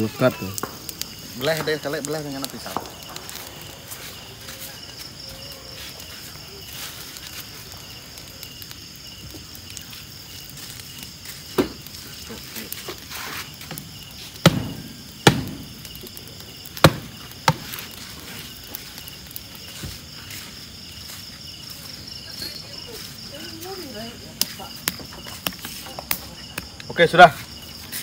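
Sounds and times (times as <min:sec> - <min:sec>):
crickets chirping: 0:00.0 - 0:28.0.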